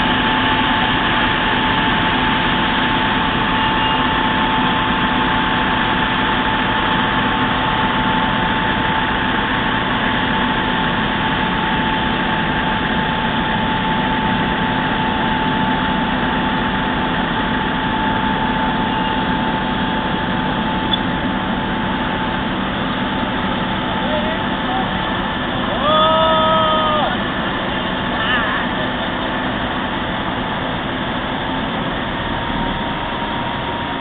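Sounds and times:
constant whine: 0.0 - 34.0
diesel engine: 0.0 - 34.0.

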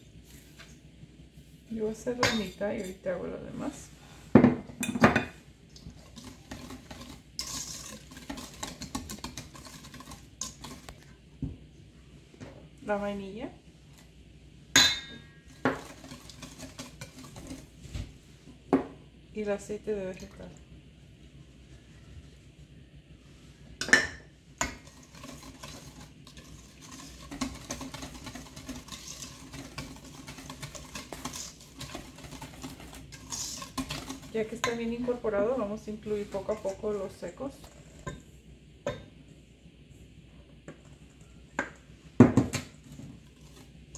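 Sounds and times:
whisk scraping metal bowl: 5.8 - 11.0, 15.4 - 17.8, 24.6 - 38.2.

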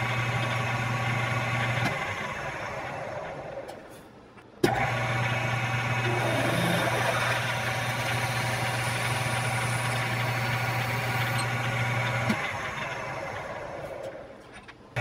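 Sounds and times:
lathe motor hum: 4.7 - 14.4
drill cutting hiss: 6.0 - 11.5.

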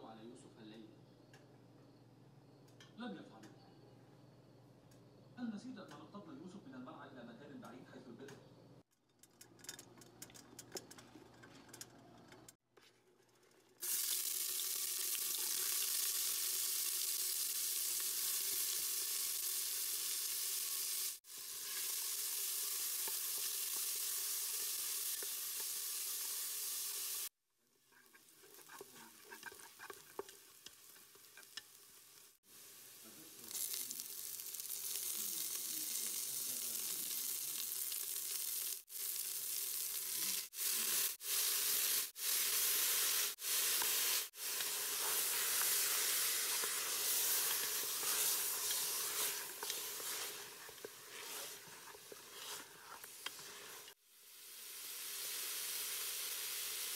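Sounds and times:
stirring clicks and scrapes: 8.9 - 13.8, 27.9 - 32.3, 44.5 - 54.0
onions sizzling in a pot: 13.7 - 56.9.

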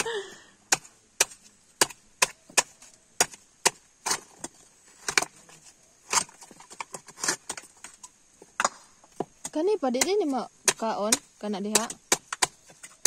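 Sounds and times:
knife chopping coconut on wood: 0.7 - 4.3, 9.9 - 13.0.

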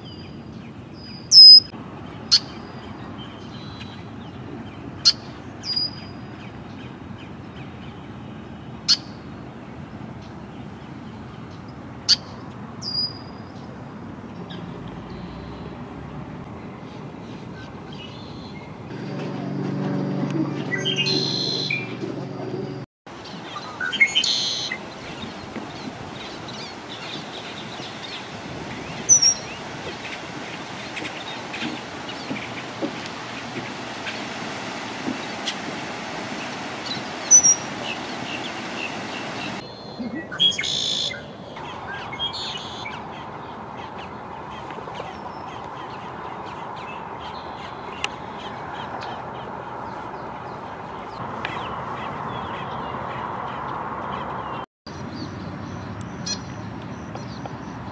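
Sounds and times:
blackbird calls: 0.0 - 1.7, 20.6 - 22.0, 23.2 - 35.6, 36.3 - 57.8.

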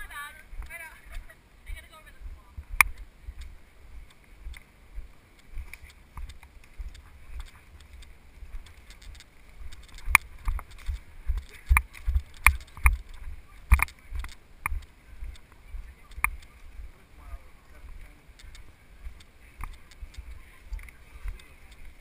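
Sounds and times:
footsteps on muddy trail: 2.1 - 22.0
sharp cracks and knocks: 5.6 - 14.9.

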